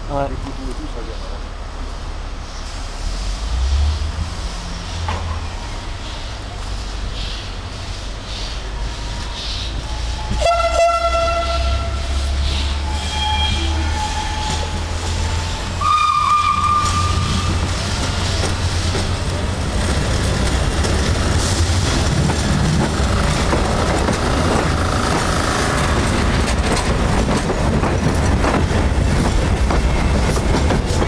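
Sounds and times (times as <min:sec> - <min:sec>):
train wheels clacking over rail joints: 0:14.0 - 0:31.0.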